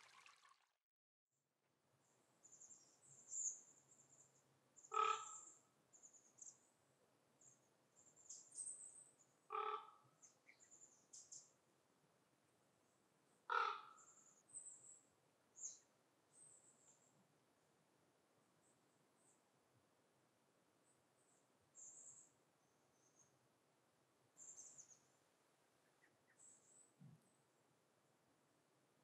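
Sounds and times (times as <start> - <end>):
large bird cawing: 4.9 - 5.4, 9.5 - 10.0, 13.5 - 14.0
small birds chirping: 10.2 - 11.6, 24.4 - 27.4.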